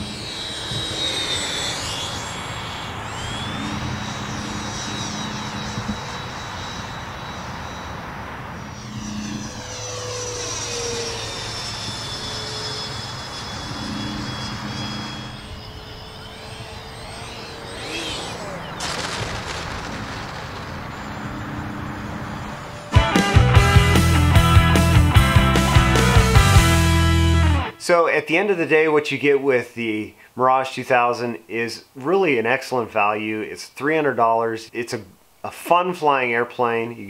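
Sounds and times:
model jet fan whining past: 0:00.0 - 0:28.0.

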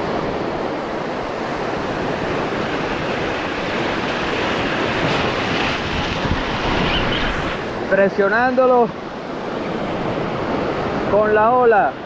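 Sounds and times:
surf breaking over rocks: 0:00.6 - 0:09.0.

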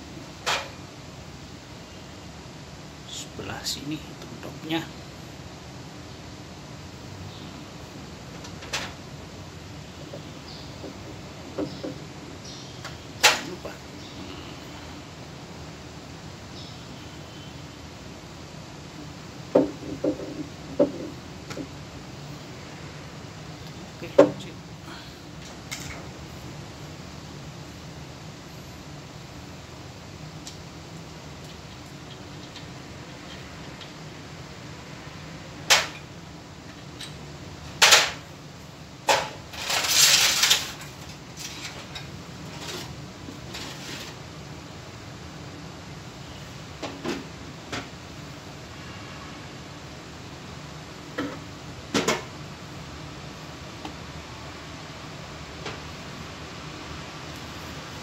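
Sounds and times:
steady low hum: 0:00.0 - 0:39.6
plastic pipe knocking: 0:19.6 - 0:21.1.

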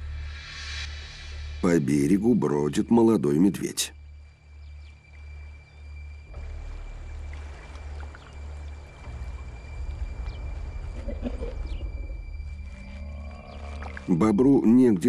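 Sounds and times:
water sloshing and rippling: 0:04.2 - 0:15.0
deep pulsing throb: 0:06.3 - 0:14.6.

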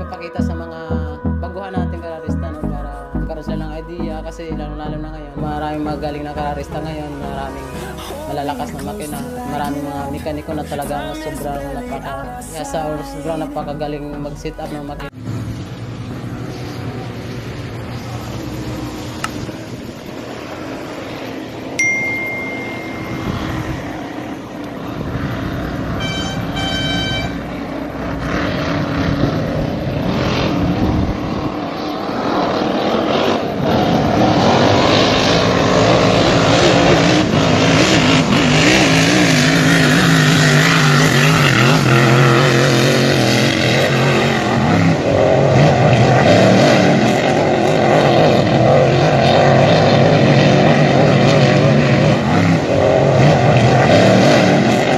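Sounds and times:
powerboat engines droning: 0:00.0 - 0:54.9
high chime: 0:21.8 - 0:23.8
electronic tones: 0:21.8 - 0:24.2, 0:25.9 - 0:27.5.

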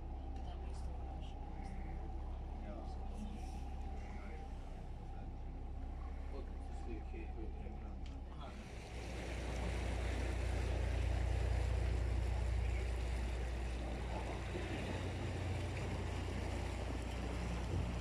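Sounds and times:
boat engine hum: 0:00.0 - 0:18.0
water wash: 0:08.3 - 0:18.0.

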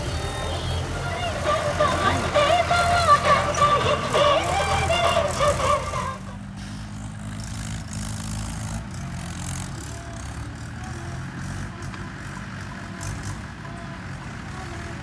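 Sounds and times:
song with vocals: 0:00.0 - 0:06.4
tractor diesel engine running: 0:00.0 - 0:15.0.

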